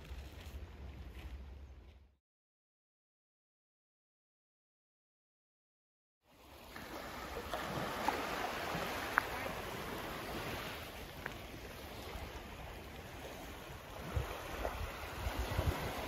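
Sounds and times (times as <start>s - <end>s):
small waves lapping against stone: 6.5s - 16.0s
wind buffeting microphone: 7.6s - 16.0s.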